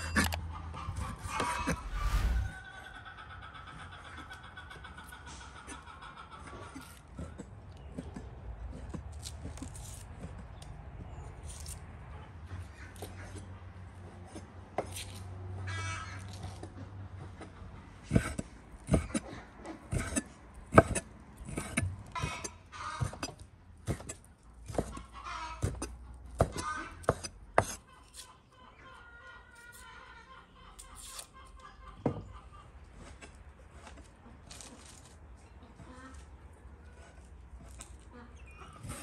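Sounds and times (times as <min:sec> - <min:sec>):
knife chopping on wooden board: 0:19.9 - 0:21.9, 0:26.4 - 0:27.8.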